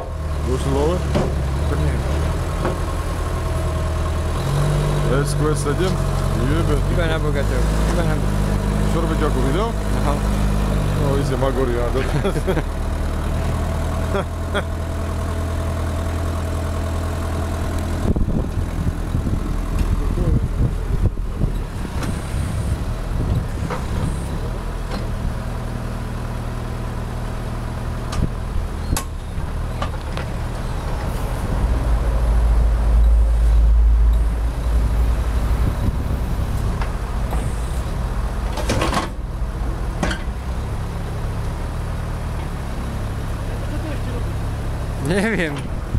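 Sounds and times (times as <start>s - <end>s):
diesel engine running: 0.0s - 45.9s
hydraulics working: 28.0s - 45.9s.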